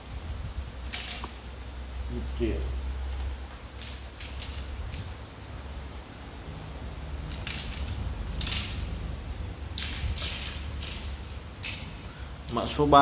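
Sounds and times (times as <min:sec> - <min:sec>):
low steady hum: 0:00.0 - 0:13.0
fishing rods clicking and scraping: 0:00.8 - 0:01.4, 0:03.7 - 0:05.1, 0:07.3 - 0:09.1, 0:09.7 - 0:12.6.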